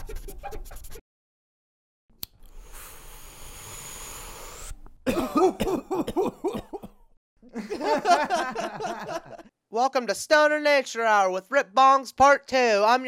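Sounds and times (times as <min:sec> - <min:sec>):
hiss of inhaling smoke: 0:02.5 - 0:04.9
person coughing hard: 0:05.1 - 0:07.1.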